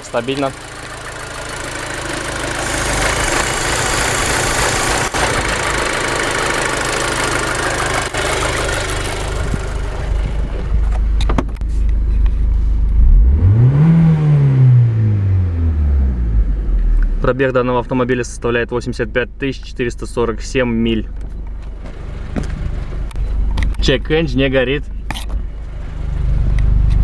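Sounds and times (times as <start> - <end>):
car engine revving: 0.0 - 10.9, 12.9 - 17.5.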